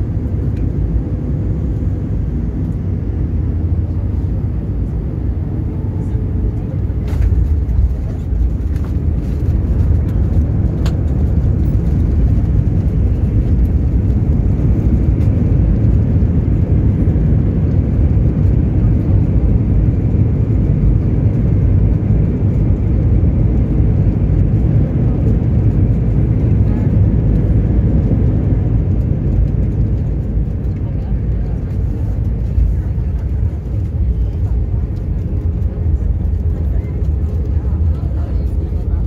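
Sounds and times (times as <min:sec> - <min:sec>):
airplane cabin engine rumble: 0:00.0 - 0:39.0.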